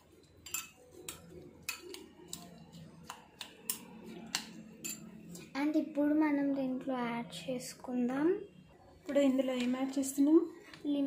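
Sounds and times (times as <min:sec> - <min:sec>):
metal spoon clinking against glass: 0:00.3 - 0:02.4, 0:03.7 - 0:05.2.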